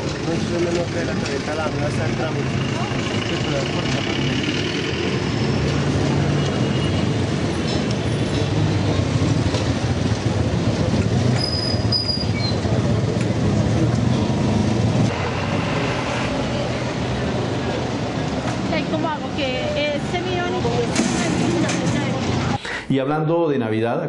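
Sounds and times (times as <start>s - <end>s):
vehicle engines running: 0.0s - 22.6s
road noise: 0.0s - 23.0s
high squeal: 11.4s - 12.7s.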